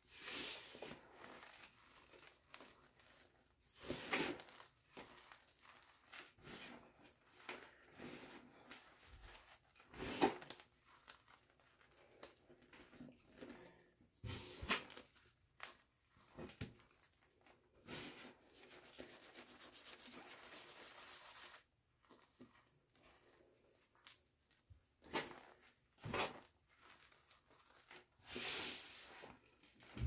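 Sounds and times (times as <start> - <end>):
hands rubbing powder: 18.1 - 21.7
fast rubbing strokes: 18.6 - 21.6.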